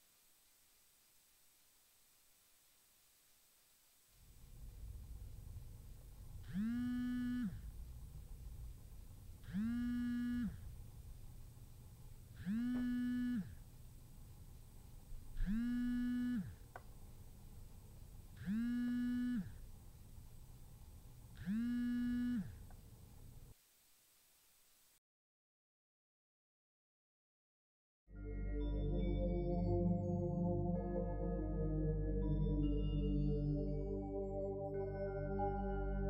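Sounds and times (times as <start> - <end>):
cell phone vibrating: 6.4 - 7.7, 9.4 - 10.7, 12.4 - 13.6, 15.4 - 16.6, 18.4 - 19.6, 21.4 - 22.6.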